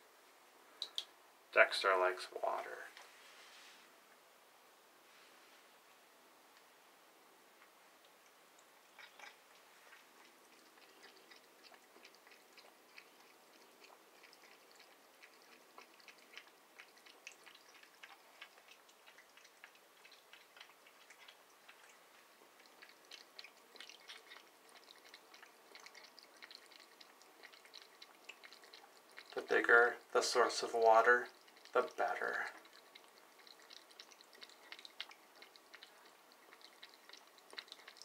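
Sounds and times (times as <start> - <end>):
cat lapping water: 7.6 - 38.0.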